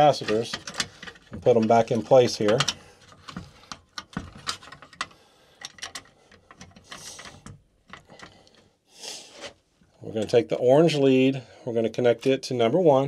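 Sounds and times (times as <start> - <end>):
small clicks and knocks: 0.0 - 8.7.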